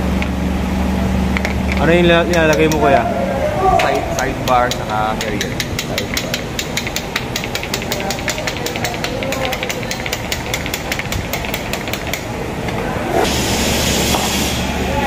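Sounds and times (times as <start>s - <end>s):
low hum: 0.0s - 7.7s
fast even ticking: 4.0s - 12.2s
loud hiss of air: 13.1s - 15.0s.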